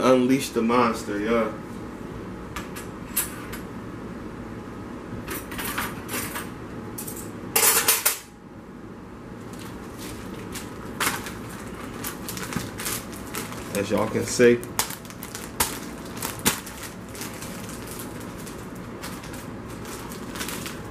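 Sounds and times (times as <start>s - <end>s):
plastic chip bag crinkling: 9.4s - 20.9s.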